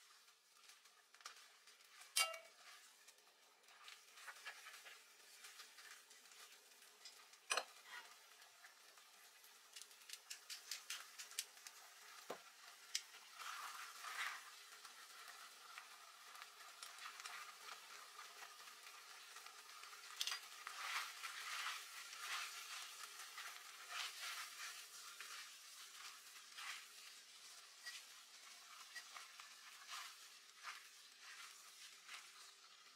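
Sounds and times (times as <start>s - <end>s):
wet sizzle in a pot: 0.0s - 32.9s
tongs clicking against pot: 2.2s - 2.6s, 9.7s - 11.7s.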